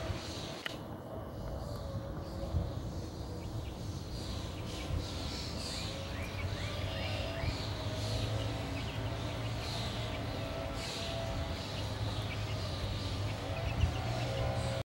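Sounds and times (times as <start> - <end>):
steady low hum: 0.0 - 14.8
young chickens peeping: 1.3 - 14.8.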